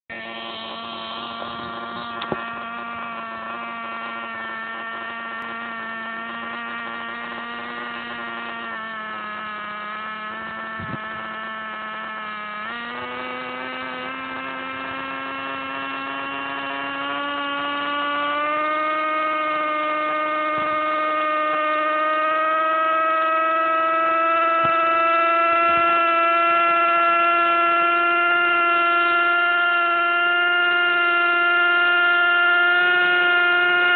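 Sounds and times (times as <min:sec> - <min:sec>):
model helicopter engine running: 0:00.1 - 0:33.9.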